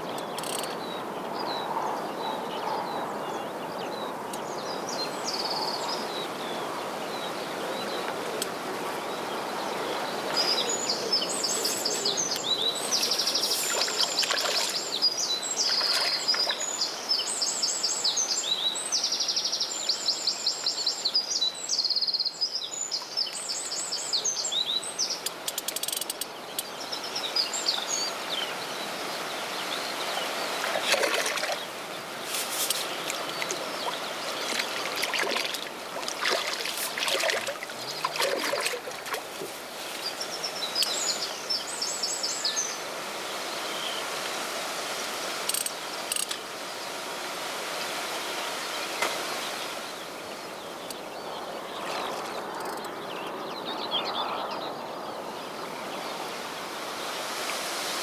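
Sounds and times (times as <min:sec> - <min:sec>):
steady outdoor hiss: 0:00.0 - 0:58.0
songbird trilling and chirping: 0:09.9 - 0:28.9
fish splashing at surface: 0:30.6 - 0:31.6, 0:32.4 - 0:39.4.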